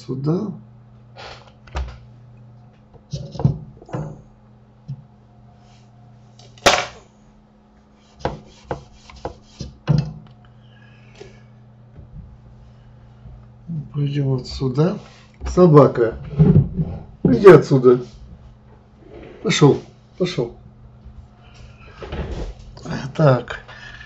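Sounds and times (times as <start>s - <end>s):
low electrical hum: 0.0s - 24.0s
rubbing scrapes: 7.9s - 9.8s.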